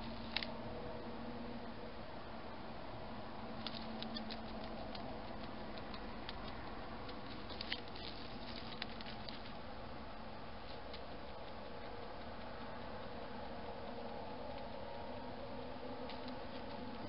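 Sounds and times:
hedgehog rustling in dry straw: 0:07.0 - 0:09.7.

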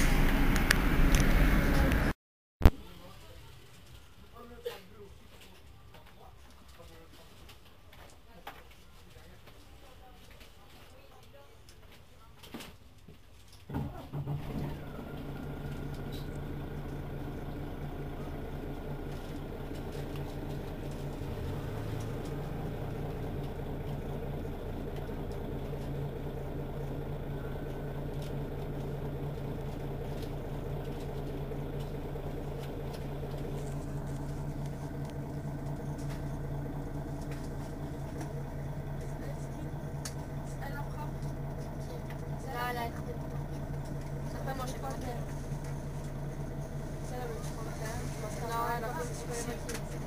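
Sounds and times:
bus engine idling: 0:00.0 - 0:02.2, 0:13.7 - 0:50.0.

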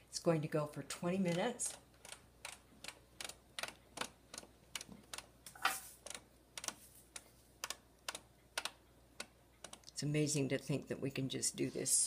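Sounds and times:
selector dial clicking: 0:06.0 - 0:09.9.

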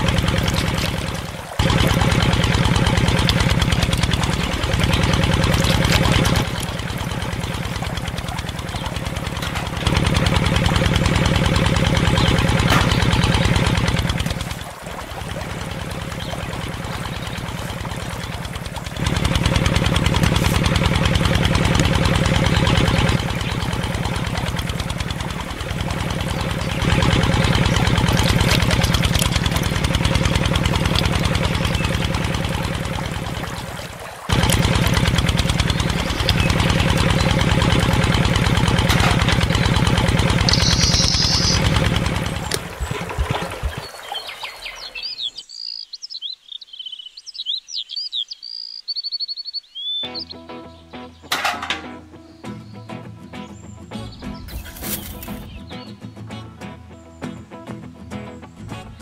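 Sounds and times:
pump engine chugging: 0:00.0 - 0:45.8.

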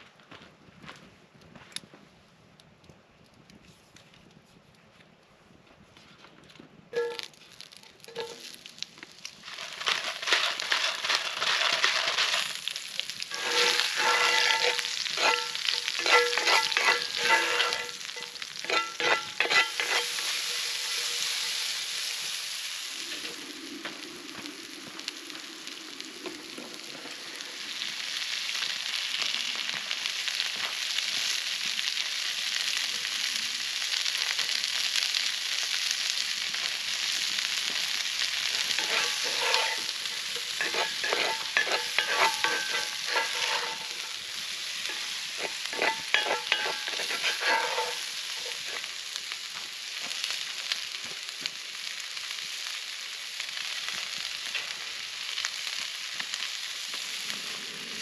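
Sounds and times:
metal utensil clinking on pan: 0:07.0 - 0:07.3, 0:08.0 - 0:08.5, 0:13.3 - 0:21.7, 0:38.6 - 0:44.2, 0:44.8 - 0:48.8
vegetables sizzling in a skillet: 0:07.0 - 0:58.0.

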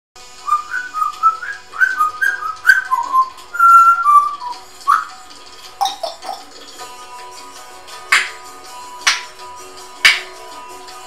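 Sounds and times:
parrot whistling a tune: 0:00.4 - 0:06.4.

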